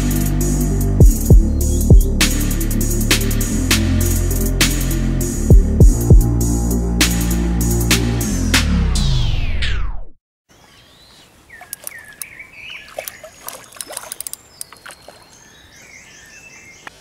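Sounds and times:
birds chirping: 10.5s - 17.0s
fish splashing water: 11.6s - 12.2s, 12.8s - 15.4s
sharp clicks: 11.7s - 12.3s, 13.0s - 14.9s.

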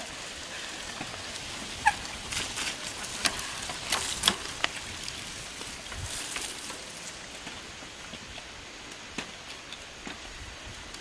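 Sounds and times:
bike clicks and rattles: 0.0s - 11.0s
bike tyres on dirt: 0.0s - 11.0s.

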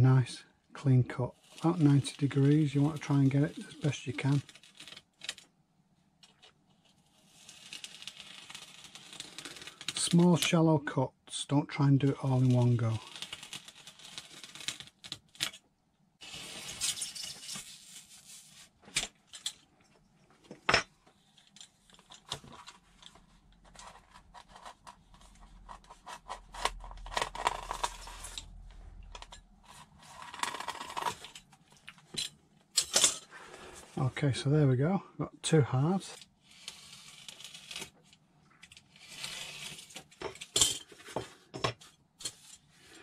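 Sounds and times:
knife rasping through foam: 7.0s - 9.8s, 23.7s - 28.4s, 36.4s - 37.9s, 38.9s - 40.0s.

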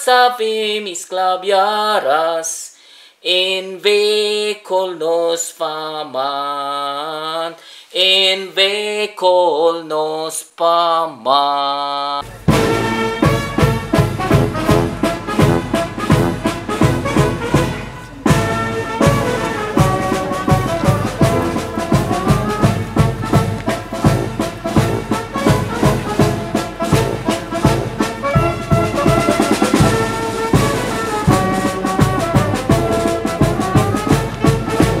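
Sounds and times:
percussion beat: 12.2s - 35.0s
brass orchestral music: 12.3s - 35.0s.

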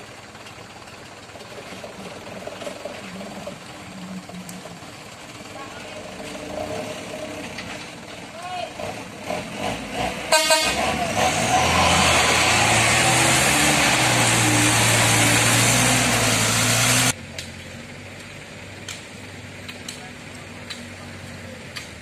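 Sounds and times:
diesel truck engine revving: 0.0s - 22.0s
truck horn toot: 10.2s - 11.5s.

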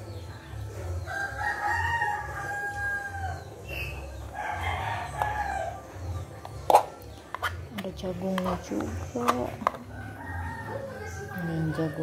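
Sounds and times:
rooster crowing: 1.1s - 3.4s.

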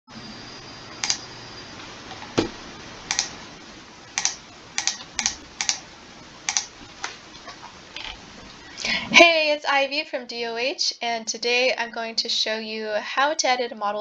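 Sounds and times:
heavier knock: 2.4s - 2.6s
mouse buttons clicking: 3.1s - 3.3s, 4.2s - 5.8s.

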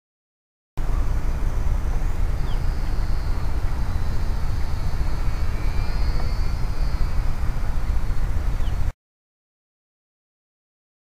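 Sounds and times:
wind rumble on microphone: 0.8s - 8.9s
model plane motor whining: 0.9s - 8.9s.

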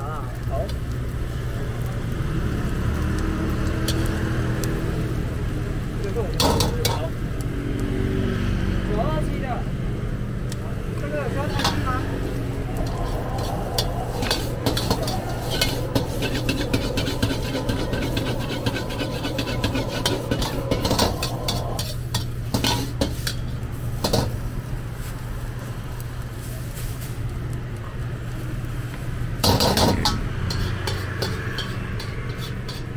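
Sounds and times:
metal ladle scraping wok: 3.7s - 4.2s, 6.3s - 7.2s, 11.4s - 24.5s, 29.4s - 32.9s
rush of noise: 10.7s - 23.0s.

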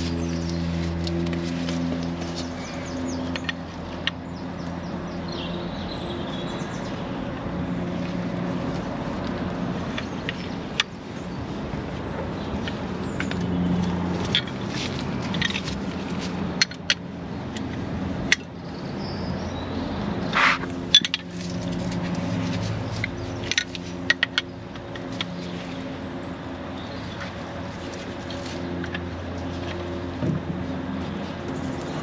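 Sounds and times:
metal spanner clicking and clinking: 20.4s - 21.4s.

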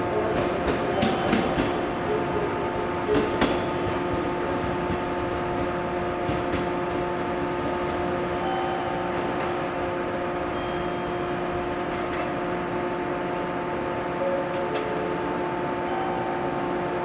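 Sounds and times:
electric train hum: 0.0s - 17.0s.

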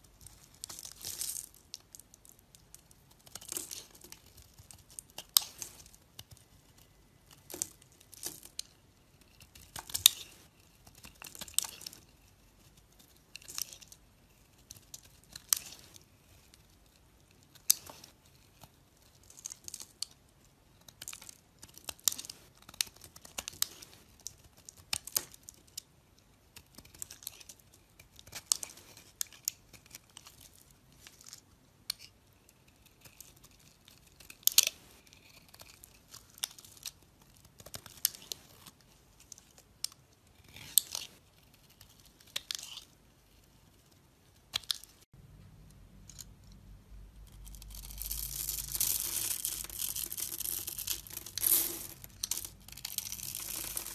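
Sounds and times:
knife scraping soap: 31.9s - 36.9s.

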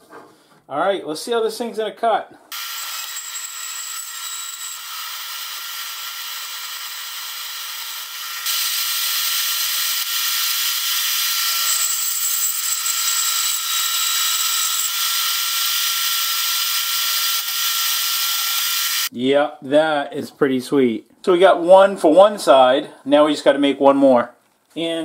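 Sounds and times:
band saw cutting metal: 2.5s - 19.1s.

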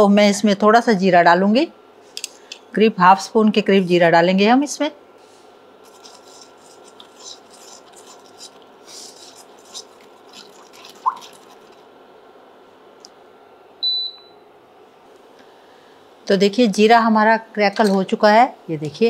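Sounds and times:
seeds crackling in hot oil: 5.8s - 12.0s
short high beep: 13.8s - 14.4s.

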